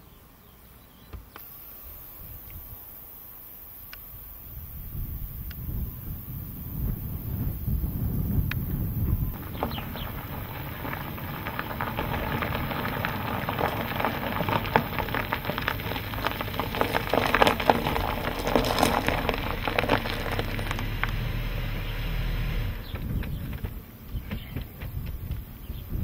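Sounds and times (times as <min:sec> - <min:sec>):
tyres crunching over gravel: 0:07.0 - 0:26.0.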